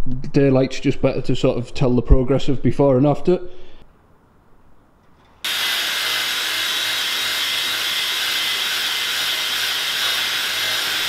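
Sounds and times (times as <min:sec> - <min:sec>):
polisher whirring with high whine: 0:05.4 - 0:11.0.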